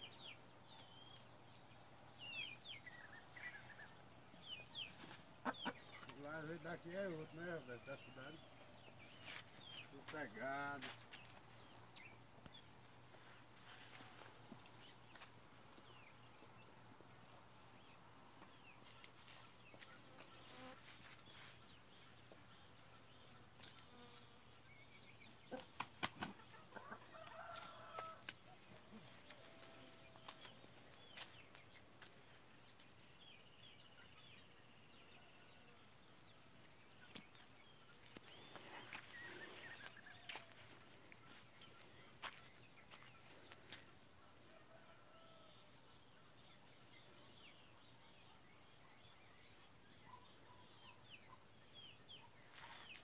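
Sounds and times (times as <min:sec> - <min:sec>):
high insect trill: 0:00.0 - 0:46.2
chicken clucking: 0:05.4 - 0:06.2
faint bird chirps: 0:17.8 - 0:53.0.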